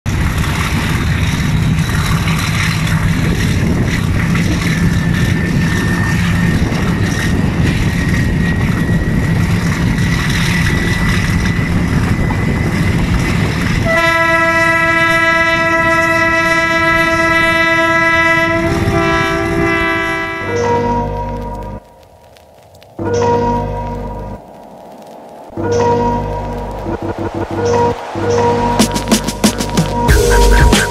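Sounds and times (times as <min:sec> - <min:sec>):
train engine and wheel rumble: 0:00.0 - 0:30.9
locomotive horn blast: 0:13.8 - 0:21.8.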